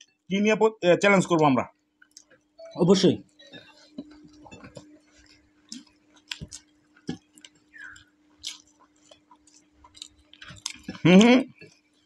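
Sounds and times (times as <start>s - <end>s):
people eating by hand: 1.2s - 12.0s
mouths chewing: 3.5s - 12.0s.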